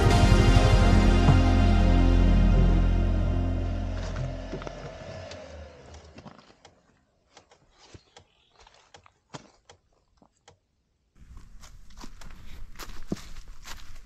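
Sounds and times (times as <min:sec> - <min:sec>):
background music: 0:00.0 - 0:05.9.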